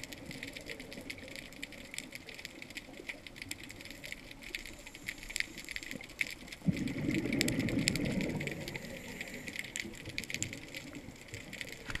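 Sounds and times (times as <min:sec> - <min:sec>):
crackle of sharp clicks: 0:00.0 - 0:12.0
diver's exhaled bubbles gurgling: 0:00.0 - 0:12.0.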